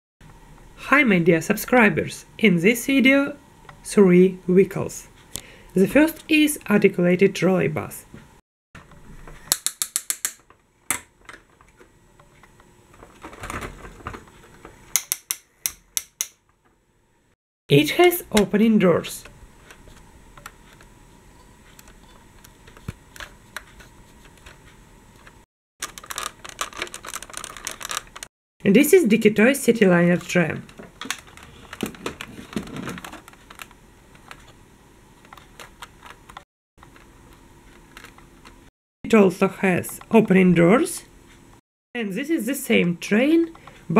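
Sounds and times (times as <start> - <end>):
plastic toy clicks and taps: 9.5 - 11.0.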